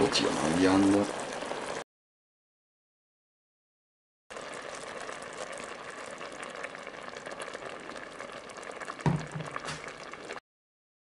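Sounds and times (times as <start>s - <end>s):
sauce bubbling in a pot: 0.0s - 1.8s, 4.3s - 10.4s
cream being poured: 4.3s - 10.4s
single knock: 9.1s - 9.8s.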